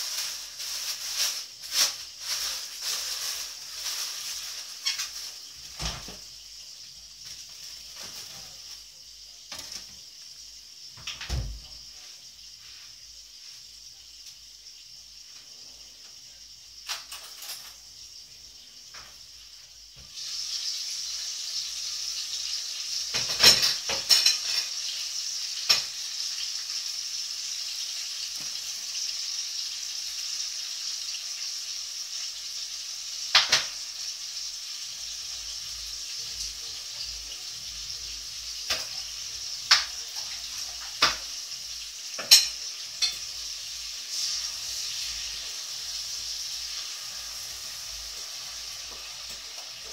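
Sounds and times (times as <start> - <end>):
food sizzling in a pan: 0.0 - 49.9
utensil clinking against pan: 42.2 - 43.2.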